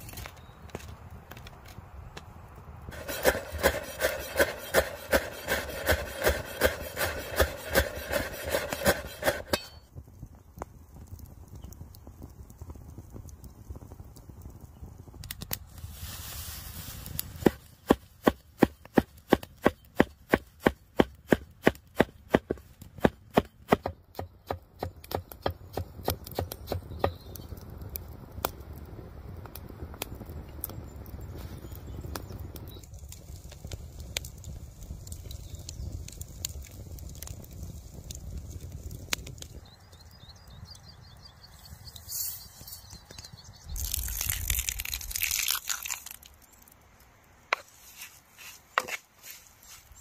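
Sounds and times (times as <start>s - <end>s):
knife chopping herbs: 2.9s - 9.8s, 17.4s - 27.2s, 47.5s - 49.4s.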